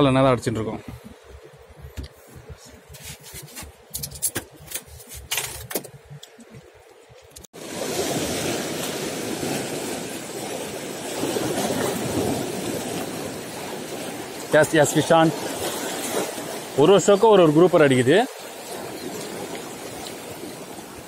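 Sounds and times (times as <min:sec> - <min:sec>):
sea waves breaking on rocks: 0:07.5 - 0:21.0.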